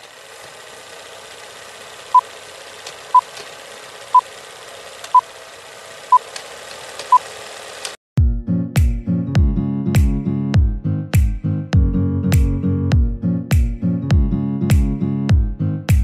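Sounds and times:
film projector rattle and crackle: 0.0s - 8.0s.

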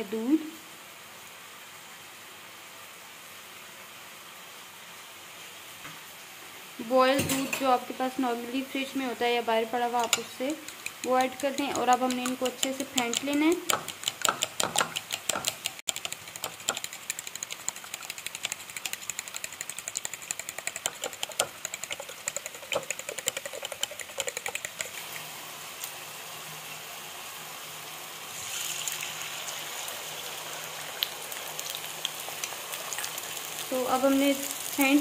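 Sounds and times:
egg sizzling on hot pan: 9.7s - 26.1s, 28.3s - 35.0s
fork clinking against ceramic bowl: 10.0s - 16.8s.

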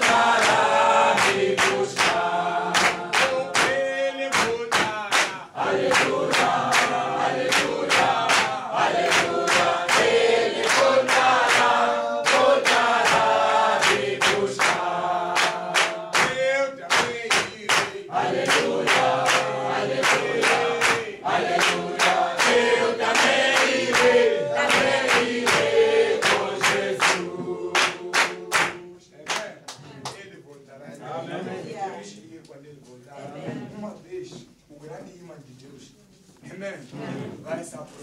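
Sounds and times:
congregation singing a hymn: 0.0s - 29.1s
hand-clapping on the beat: 0.0s - 30.2s.

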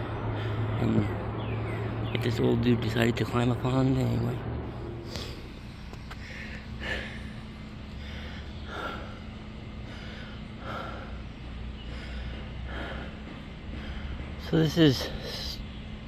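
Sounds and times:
man breathing: 0.0s - 0.8s, 4.6s - 14.4s
low steady hum: 0.0s - 16.0s.

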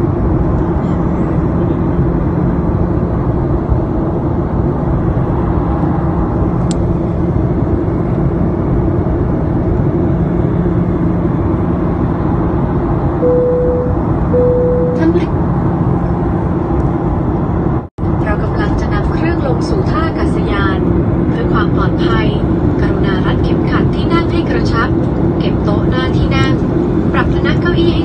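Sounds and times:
rushing air: 0.0s - 18.2s
jet engine rumble: 0.0s - 28.0s.

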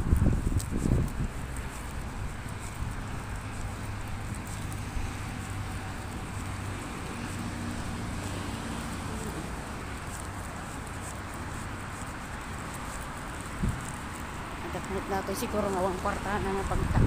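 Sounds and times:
wind on microphone: 0.0s - 8.1s, 13.4s - 14.1s, 16.0s - 17.0s
road traffic hum: 0.0s - 17.0s.

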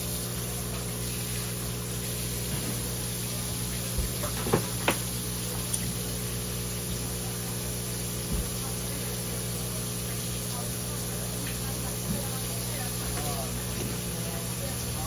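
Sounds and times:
tap water pouring: 0.0s - 7.0s
tap water pouring and splashing: 0.0s - 15.0s
knocks and splashes: 3.9s - 5.1s.

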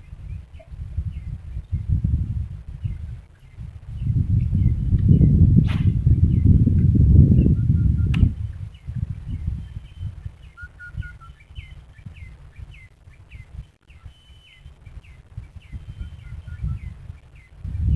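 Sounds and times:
wind rumble on microphone: 0.0s - 17.9s.

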